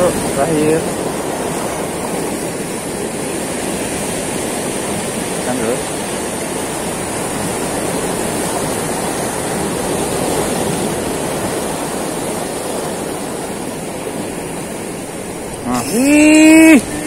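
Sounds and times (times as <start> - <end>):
surf breaking over rocks: 0.0 - 17.0.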